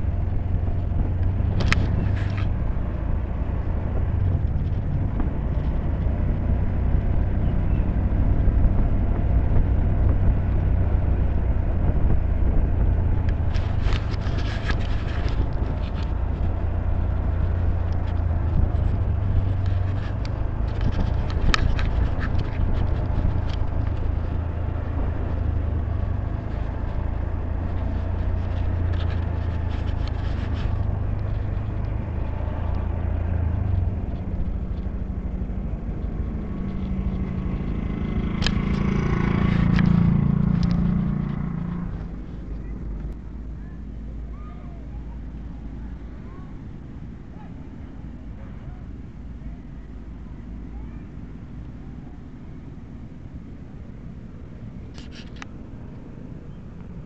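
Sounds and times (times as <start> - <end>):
wind noise: 0.0 - 44.2
scooter engine rumble: 0.0 - 57.0
rattling and clicks: 10.0 - 43.2.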